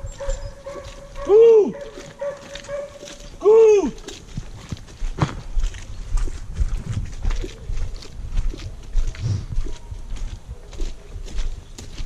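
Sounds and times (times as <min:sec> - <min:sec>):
footsteps on muddy track: 0:00.0 - 0:12.0
dog barking: 0:00.1 - 0:03.2.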